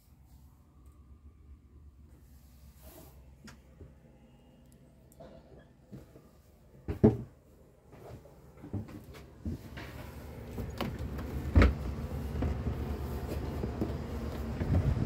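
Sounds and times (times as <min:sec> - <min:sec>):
wind rumbling on microphone: 0:13.6 - 0:15.0.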